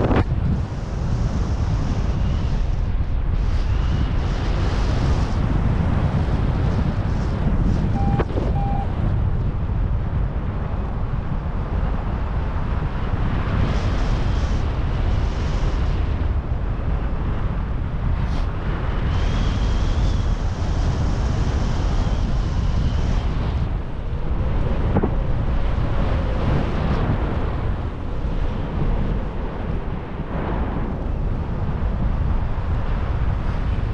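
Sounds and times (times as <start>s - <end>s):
wind buffeting microphone: 0.0s - 33.9s
faint thin high whistle: 8.0s - 8.9s.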